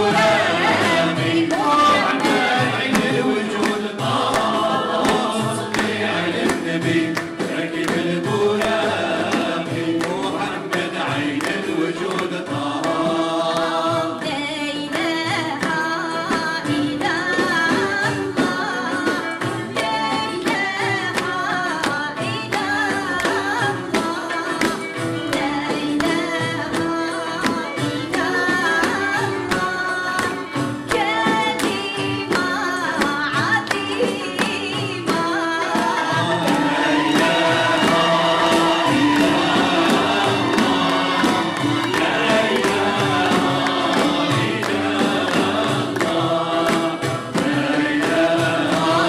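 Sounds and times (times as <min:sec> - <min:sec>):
voices singing together: 0:00.0 - 0:49.0
ouds and bowed strings: 0:36.2 - 0:49.0.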